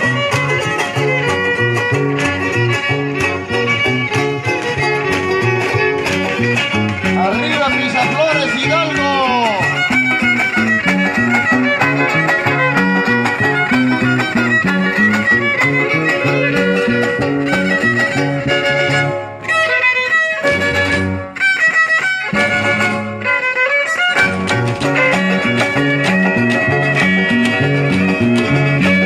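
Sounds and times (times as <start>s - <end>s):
stepping bass line: 0.0s - 19.3s
fast violin melody: 0.0s - 29.0s
strummed guitar: 0.0s - 29.0s.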